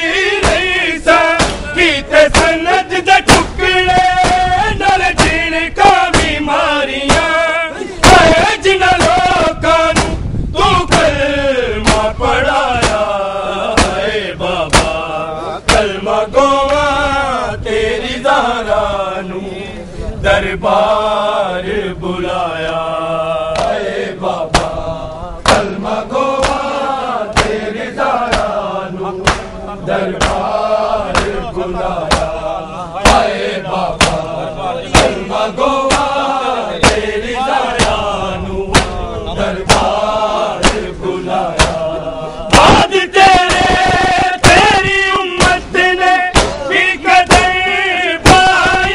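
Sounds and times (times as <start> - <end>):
men chanting a lament: 0.0 - 48.9
chest-beating slaps: 0.4 - 2.6, 3.2 - 4.5, 5.2 - 5.5, 6.1 - 6.4, 7.0 - 7.4, 8.0 - 10.2, 11.8 - 12.2, 12.8 - 13.2, 13.8 - 14.1, 14.7 - 15.1, 15.7 - 16.0, 23.5 - 23.8, 24.5 - 24.8, 25.4 - 25.8, 26.4 - 29.6, 30.2 - 32.4, 33.0 - 33.3, 34.0 - 35.2, 35.8 - 36.2, 36.8 - 37.1, 37.8 - 38.0, 38.7 - 40.0, 40.6 - 40.9, 41.5 - 41.9, 42.5 - 47.6, 48.2 - 48.9.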